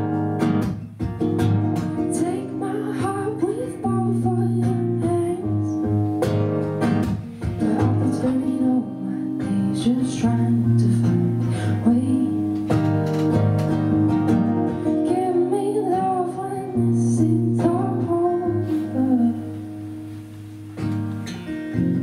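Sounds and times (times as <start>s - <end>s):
strummed acoustic guitar: 0.0s - 22.0s
woman singing: 1.8s - 6.1s, 7.4s - 13.0s, 14.7s - 20.0s.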